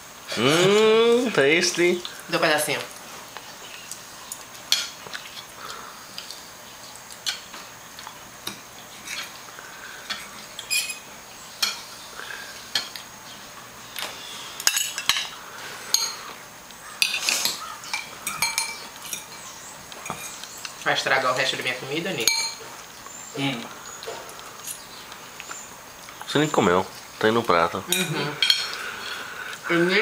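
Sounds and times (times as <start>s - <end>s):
cutlery clinking on plates: 8.4s - 9.4s, 10.0s - 11.9s, 14.6s - 15.3s, 15.9s - 16.4s, 17.0s - 20.5s, 21.6s - 22.8s, 27.9s - 28.8s.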